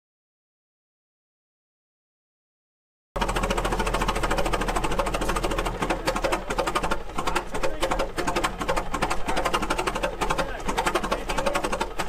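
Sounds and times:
old gas engine clattering: 3.2 - 12.0.

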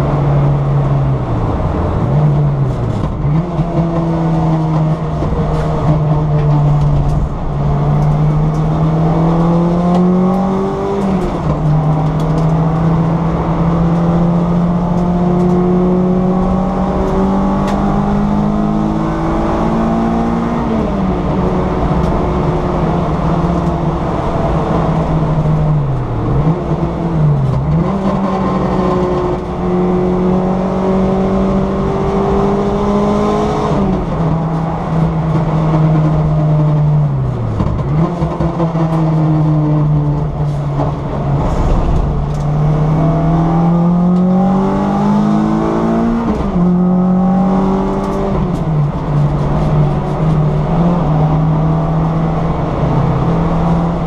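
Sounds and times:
car engine revving: 0.0 - 54.0
road and tyre noise: 0.0 - 54.0.

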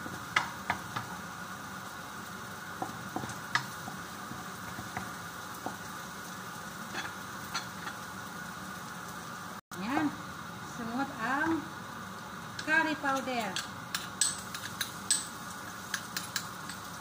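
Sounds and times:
garlic sizzling in oil: 0.0 - 17.0
wooden spatula tapping and scraping: 2.8 - 5.9.

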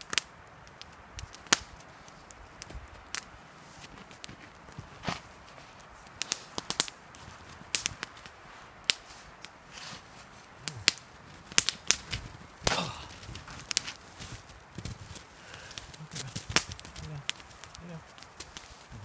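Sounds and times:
campfire crackling and popping: 0.0 - 19.0.

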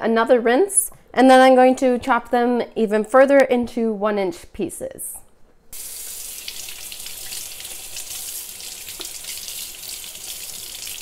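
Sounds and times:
faucet running: 5.8 - 11.0.

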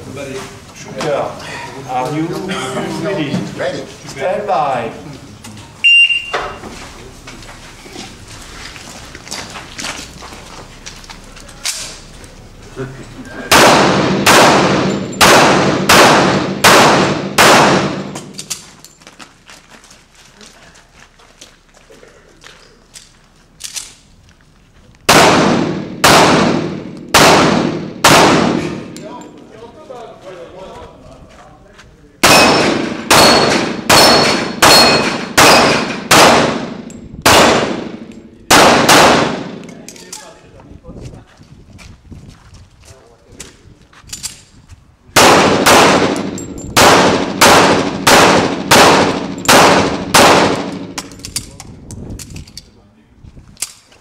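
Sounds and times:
gunshots echoing: 13.5 - 18.4, 25.1 - 29.0, 32.2 - 39.7, 45.2 - 51.1.

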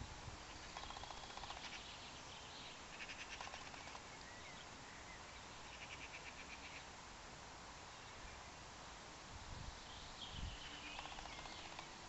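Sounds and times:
steady outdoor hiss: 0.0 - 12.0
small animals chirping: 0.6 - 2.0, 2.9 - 4.1, 10.6 - 11.9.

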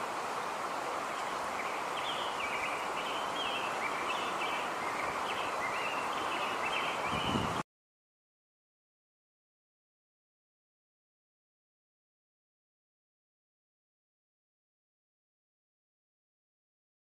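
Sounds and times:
steady rushing hiss: 0.0 - 7.6
small bird chirping: 1.2 - 7.4.

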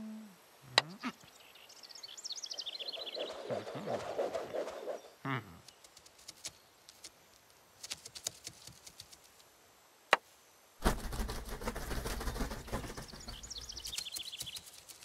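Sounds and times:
bird-like chirps: 0.8 - 6.7, 12.6 - 15.0
rustling noise with low rumble: 10.8 - 15.0.

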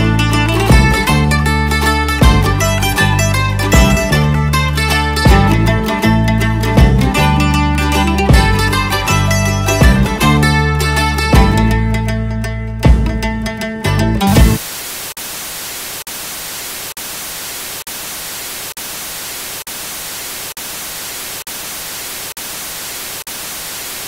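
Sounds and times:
plucked-string background music: 0.0 - 14.6
tv static hiss: 14.6 - 24.0.

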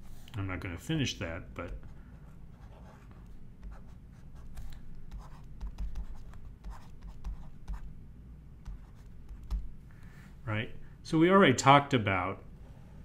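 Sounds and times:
low steady hum: 0.0 - 13.0
stylus scratching on drawing tablet: 1.6 - 7.9.

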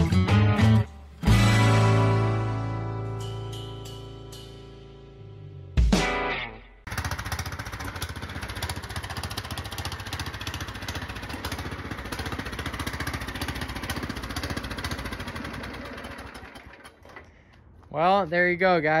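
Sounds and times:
riding lawn mower engine running: 6.8 - 17.9.

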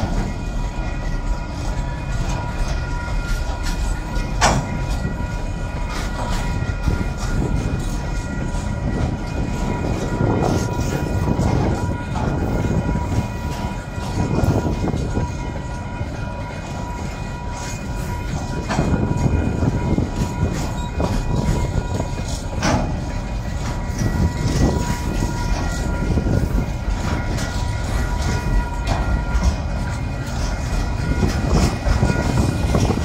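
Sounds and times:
train wheels rumbling on rail: 0.0 - 33.0
wheels clicking over rail joints: 0.0 - 33.0.

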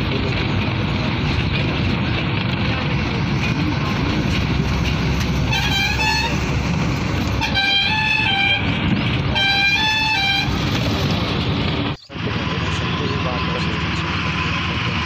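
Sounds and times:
bus engine and road noise: 0.0 - 15.0
musical vehicle horn: 5.4 - 6.5, 7.4 - 10.6.

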